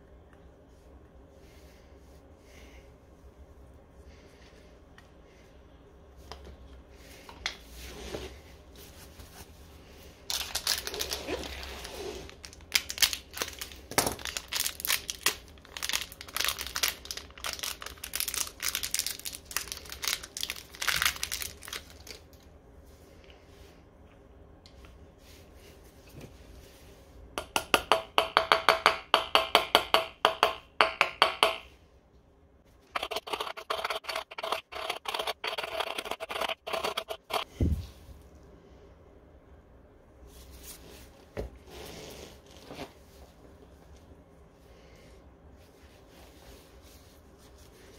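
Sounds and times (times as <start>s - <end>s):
plastic packet crinkling and tearing: 10.3s - 11.6s, 12.3s - 22.5s.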